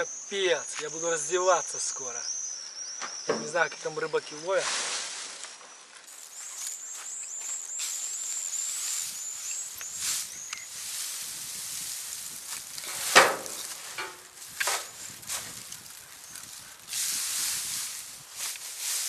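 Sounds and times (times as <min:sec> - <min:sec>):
small bird chirping: 0:00.0 - 0:04.5, 0:05.6 - 0:12.9, 0:13.5 - 0:18.2
sharp knock: 0:13.1 - 0:14.1.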